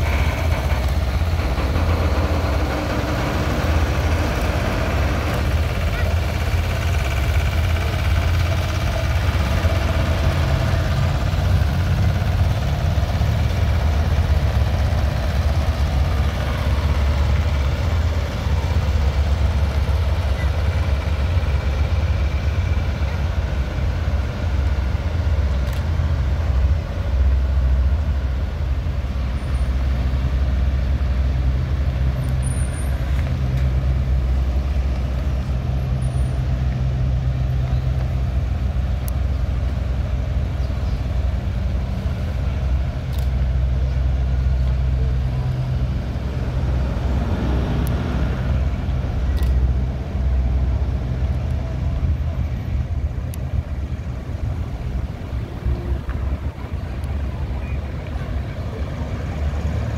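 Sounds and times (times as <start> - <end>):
truck diesel engine drone: 0.0 - 59.9
sharp clicks: 49.3 - 49.6.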